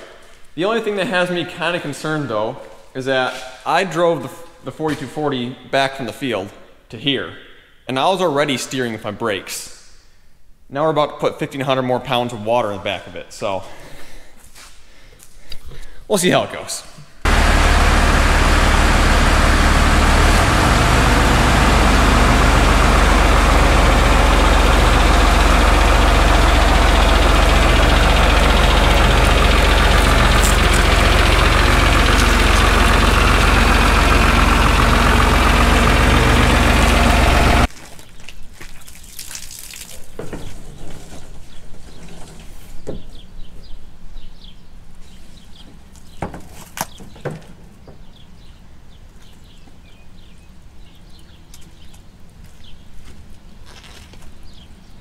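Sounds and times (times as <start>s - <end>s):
diesel tractor engine running: 17.3s - 37.7s.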